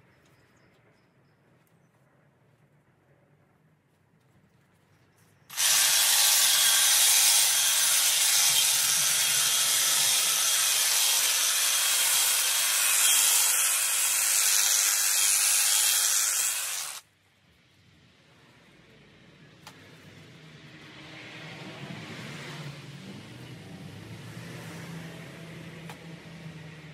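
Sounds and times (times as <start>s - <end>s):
hedge trimmer cutting foliage: 5.5s - 17.0s.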